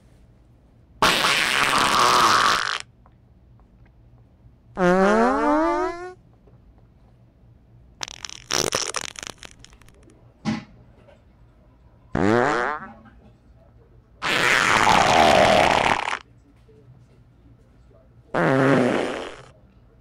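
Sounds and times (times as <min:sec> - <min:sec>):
fart sounds: 0:01.0 - 0:02.9, 0:04.8 - 0:06.2, 0:08.0 - 0:10.0, 0:12.1 - 0:13.0, 0:14.2 - 0:16.2, 0:18.4 - 0:19.5.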